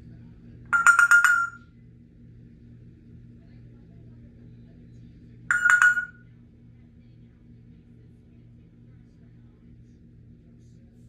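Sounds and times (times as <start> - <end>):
faint low hum: 0.0 - 1.6, 2.3 - 11.0
parrot mimicking phone ringing: 0.8 - 1.6, 5.5 - 6.2.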